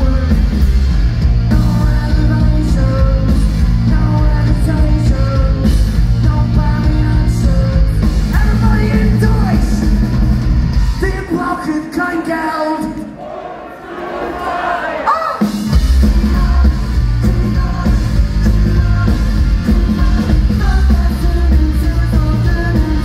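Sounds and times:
punk rock band playing: 0.0s - 12.0s, 14.6s - 23.0s
people singing: 13.2s - 15.3s.

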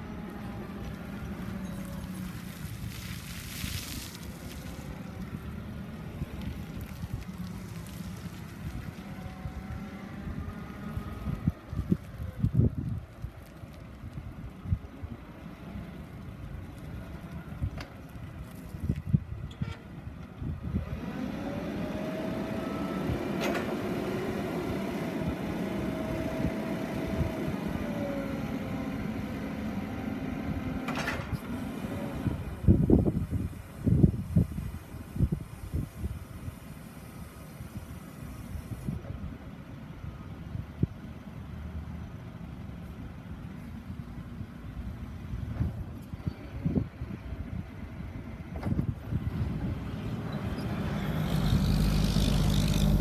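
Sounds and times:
forklift engine running: 0.0s - 2.7s, 20.9s - 33.8s, 47.8s - 53.0s
tyres on gravel: 0.0s - 19.3s
wind on microphone: 32.3s - 36.6s.

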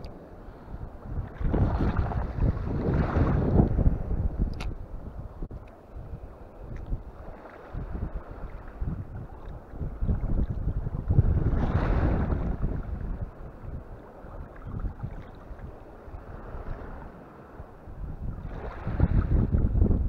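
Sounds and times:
wind buffeting the microphone: 0.0s - 20.0s.

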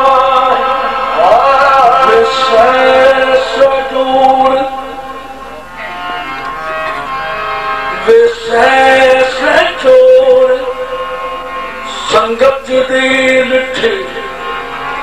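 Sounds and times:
man singing into microphone: 0.0s - 5.7s, 8.0s - 15.0s
reedy held notes: 0.0s - 15.0s.

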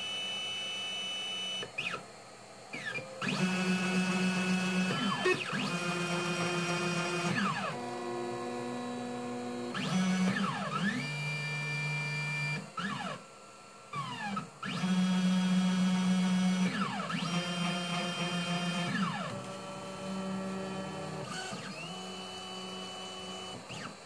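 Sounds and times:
stepper motor whine: 2.8s - 13.2s.

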